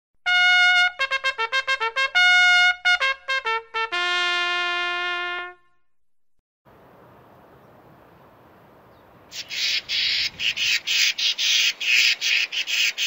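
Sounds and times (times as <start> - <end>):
trumpet fanfare: 0.2 - 5.8.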